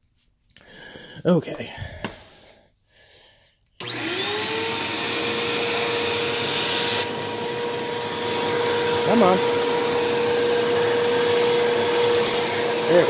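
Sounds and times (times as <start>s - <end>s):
vacuum cleaner motor whine: 3.8s - 13.0s.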